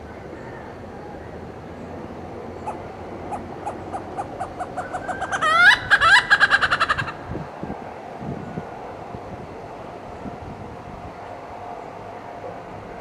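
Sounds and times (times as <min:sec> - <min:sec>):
hornbill calling: 0:02.5 - 0:07.2.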